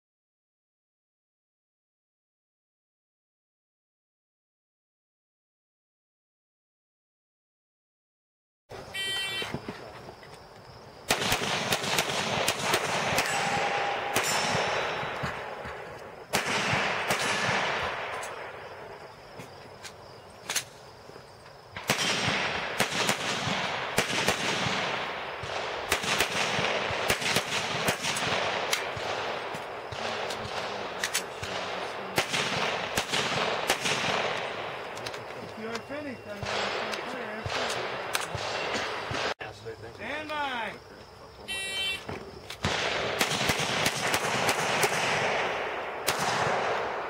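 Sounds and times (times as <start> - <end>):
pistol shots echoing: 11.0 - 18.9, 21.8 - 39.4, 42.6 - 47.0.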